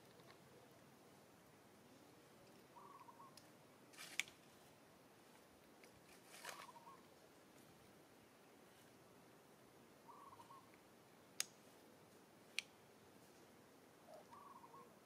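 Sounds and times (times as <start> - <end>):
faint sharp clicks: 2.4 - 3.5, 11.4 - 11.6.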